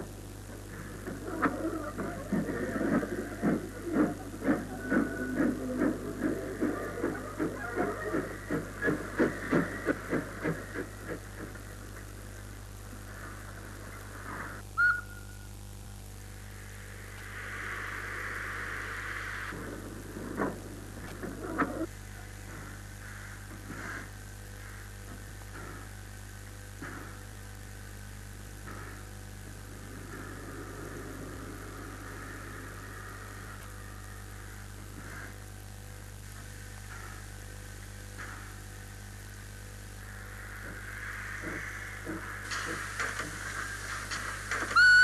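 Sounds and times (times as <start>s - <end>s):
low mains hum: 0.0s - 45.0s
steam locomotive hissing: 0.7s - 11.9s, 16.7s - 20.6s, 40.0s - 45.0s.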